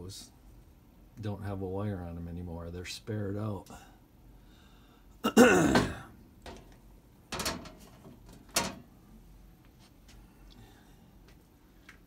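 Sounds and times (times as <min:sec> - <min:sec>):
metal door creaking: 0:05.8 - 0:08.9.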